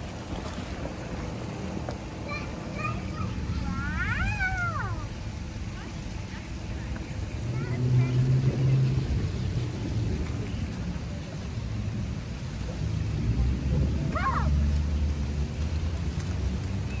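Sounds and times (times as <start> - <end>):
wind buffeting microphone: 0.0 - 14.7.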